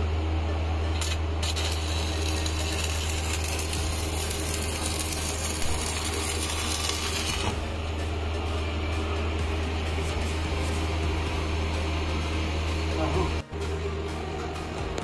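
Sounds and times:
steady low hum: 0.0 - 15.0
arc welding crackling hiss: 0.9 - 7.8.

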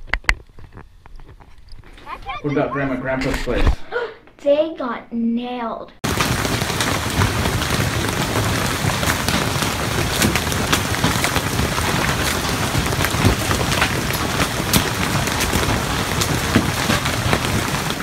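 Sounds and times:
hailstones knocking: 6.0 - 18.0
rain and hail hissing: 6.0 - 18.0.

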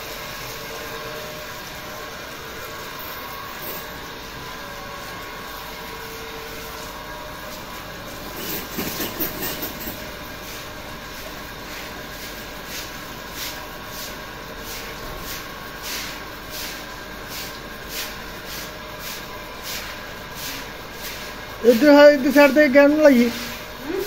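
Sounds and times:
hose water splashing on concrete: 9.7 - 23.7.

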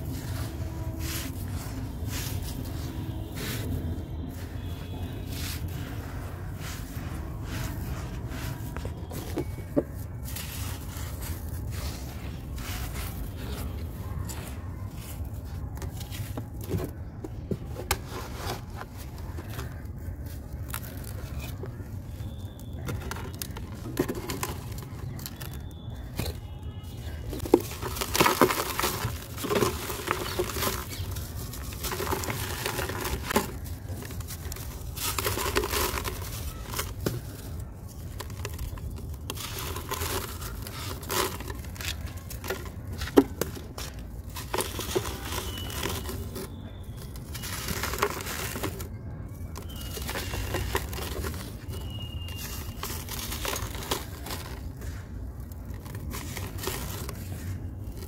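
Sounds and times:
fingers scraping crumbs: 0.0 - 17.0
sand block crunching: 0.0 - 58.0.

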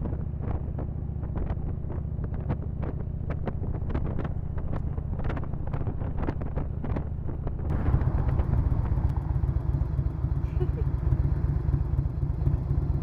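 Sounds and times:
wind buffeting microphone: 0.0 - 9.8
low rumble: 0.0 - 13.0.

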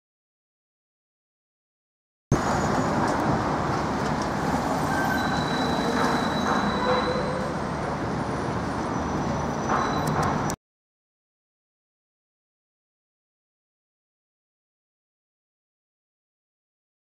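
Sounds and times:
city street traffic: 2.3 - 10.6.

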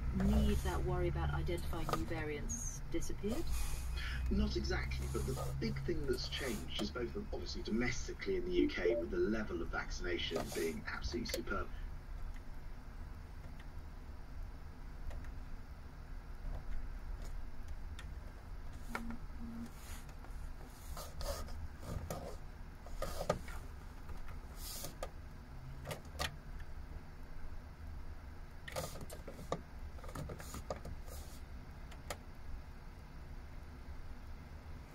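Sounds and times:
low hum in cab: 0.0 - 34.9.

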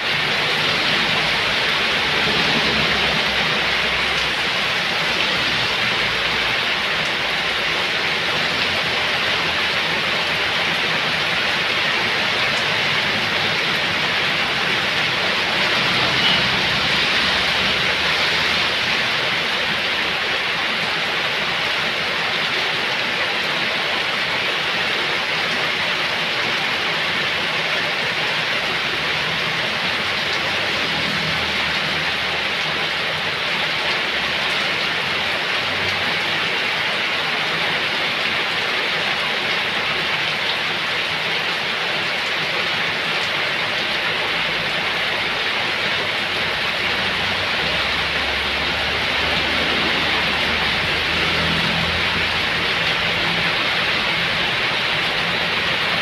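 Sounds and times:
heavy rain on pavement: 0.0 - 56.0.

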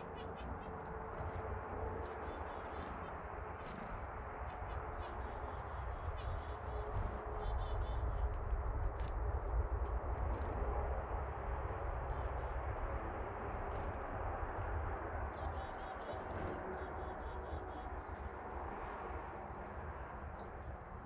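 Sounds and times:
songbirds chirping: 0.0 - 21.0
wind rumble on microphone: 0.0 - 21.0.

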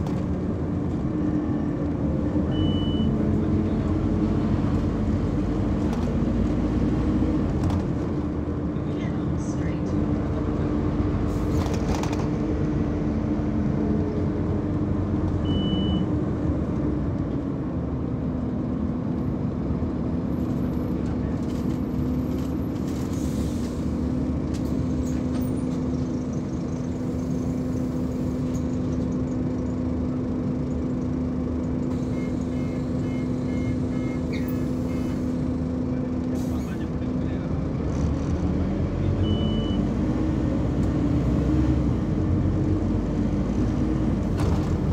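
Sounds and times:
bus diesel engine hum: 0.0 - 44.9
road and cabin noise: 0.0 - 44.9
faint short beeps: 2.5 - 3.1, 15.4 - 16.1.

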